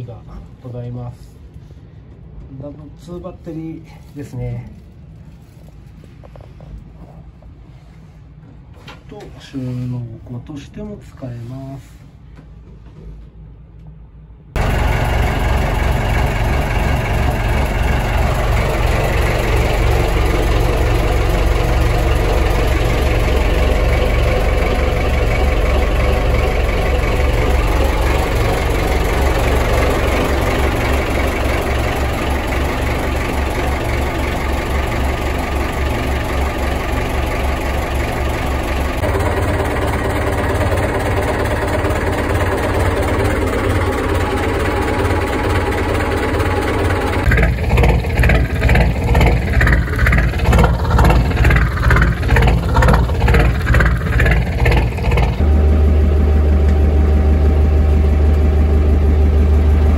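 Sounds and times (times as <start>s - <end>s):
boat engine idling: 14.6s - 59.9s.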